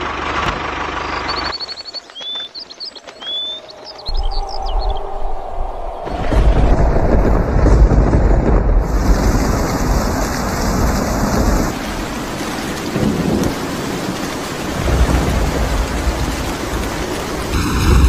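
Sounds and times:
heavy rain: 0.0 - 18.0
low rolling thunder: 4.1 - 18.0.

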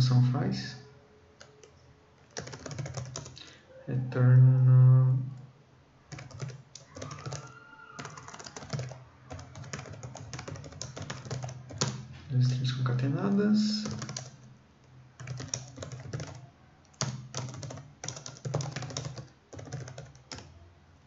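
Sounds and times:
computer keyboard typing: 1.4 - 3.4, 6.1 - 14.5, 15.2 - 20.5.

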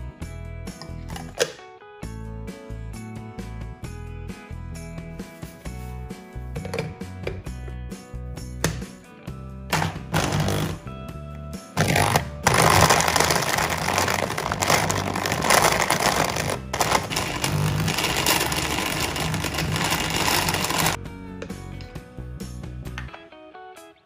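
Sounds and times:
stick blender chopping chocolate: 9.7 - 10.8, 11.8 - 21.0.

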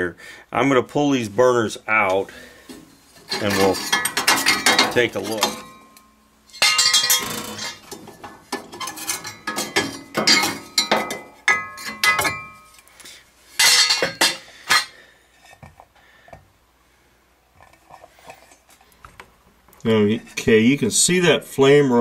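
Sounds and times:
metal burners clanking and scraping: 2.3 - 12.8, 13.6 - 15.8.

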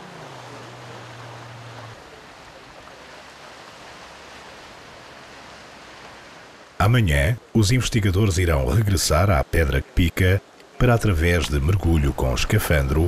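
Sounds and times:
distant outboard motor droning: 0.0 - 6.8
sea noise rushing: 0.0 - 13.0.

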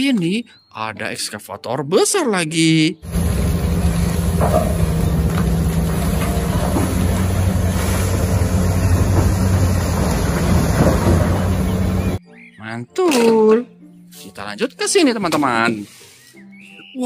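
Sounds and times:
excavator diesel engine drone: 3.0 - 12.2.

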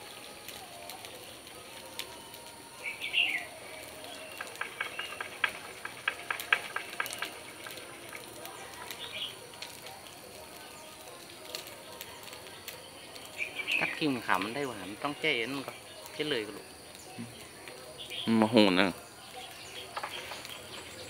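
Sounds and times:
bird chirping: 2.8 - 7.7, 12.8 - 14.8, 18.0 - 18.4, 19.2 - 21.0.

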